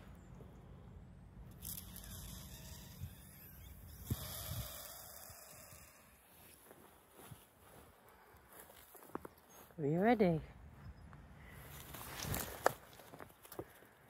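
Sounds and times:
low steady rumble: 0:00.0 - 0:06.3
soft rustling: 0:11.5 - 0:13.9.

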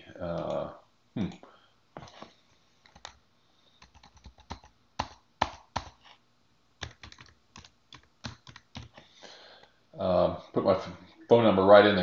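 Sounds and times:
typing on computer keyboard: 0:02.8 - 0:03.2, 0:03.8 - 0:06.0, 0:06.8 - 0:09.0.

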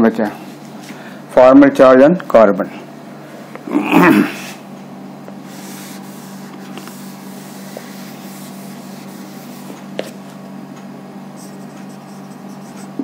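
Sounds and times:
duster wiping a whiteboard: 0:05.4 - 0:10.4, 0:11.3 - 0:13.0.

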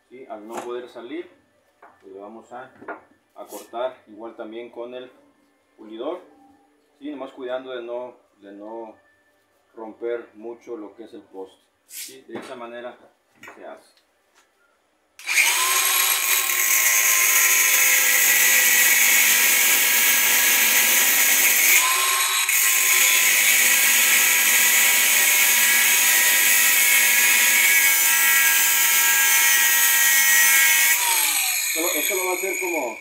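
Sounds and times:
angle grinder cutting metal: 0:15.2 - 0:33.0.

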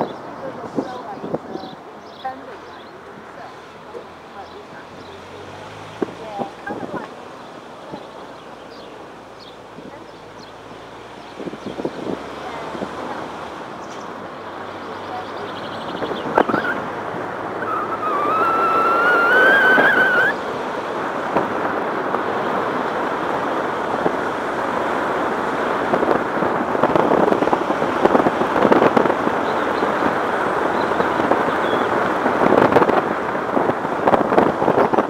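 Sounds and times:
road noise: 0:00.0 - 0:35.0
wind buffeting microphone: 0:00.0 - 0:35.0
rising whine: 0:16.3 - 0:20.5.

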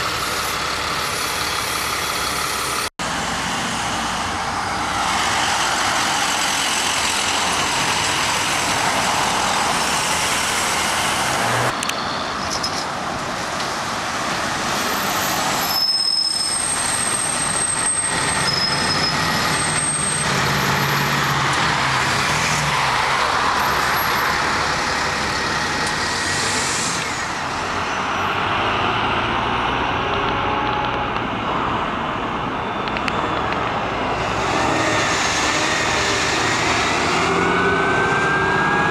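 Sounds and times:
diesel bus engines: 0:00.0 - 0:38.9
tyre and road noise: 0:00.0 - 0:38.9.

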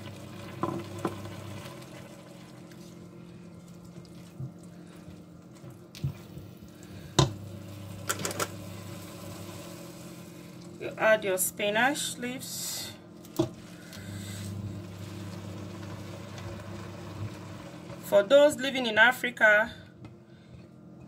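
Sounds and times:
soup simmering in a pot: 0:00.0 - 0:10.8, 0:13.5 - 0:18.1.

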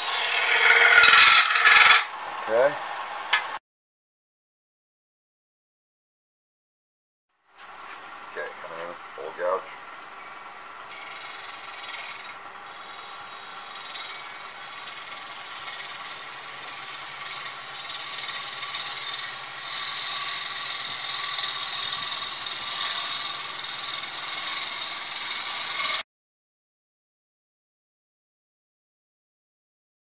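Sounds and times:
wood lathe whine: 0:00.0 - 0:03.4, 0:07.6 - 0:26.0.

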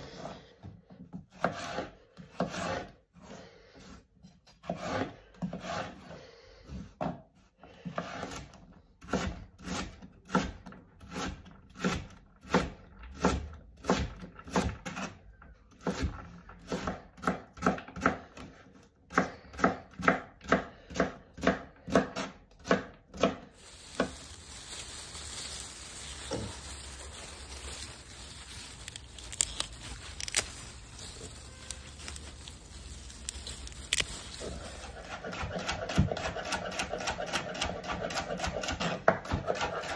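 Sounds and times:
leaves rustling: 0:23.4 - 0:35.6.

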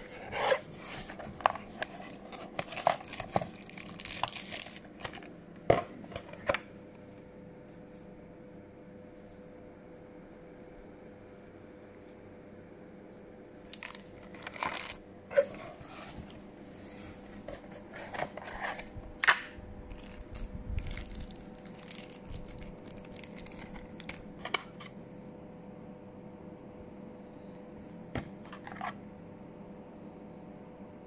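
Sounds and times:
box and plastic bags rustling: 0:00.0 - 0:06.6, 0:13.6 - 0:16.4, 0:17.2 - 0:24.8
faint steady hum: 0:00.0 - 0:31.0.

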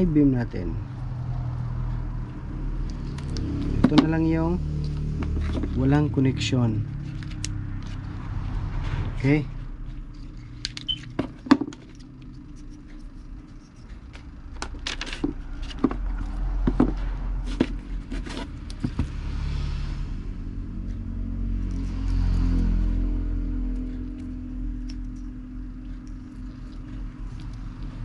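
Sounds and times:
low steady rumble: 0:00.0 - 0:28.0
plastic parts clicking and knocking: 0:10.6 - 0:12.2, 0:14.1 - 0:19.0.

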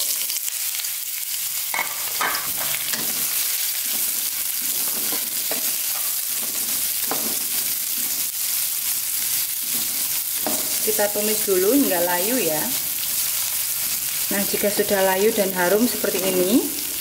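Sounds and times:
vegetables sizzling in hot oil: 0:00.0 - 0:17.0
spatula scraping a pan: 0:01.8 - 0:08.3, 0:09.2 - 0:10.8.

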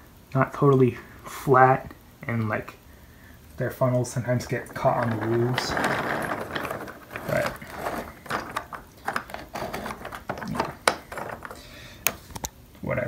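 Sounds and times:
toy wheels rolling on wooden track: 0:04.2 - 0:11.8
clicks and knocks: 0:04.4 - 0:12.5.

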